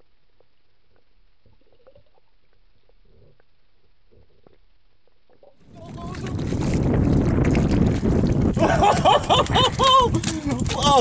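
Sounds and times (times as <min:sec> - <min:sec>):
underwater gurgles: 0:00.2 - 0:04.7
water and wind: 0:05.6 - 0:11.0.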